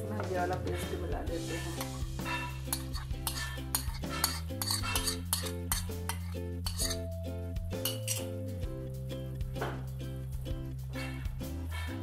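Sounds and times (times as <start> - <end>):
background music: 0.0 - 12.0
spoon scraping paste from jar: 1.7 - 7.0
spoon clinking against glass: 2.7 - 7.1, 7.8 - 8.4.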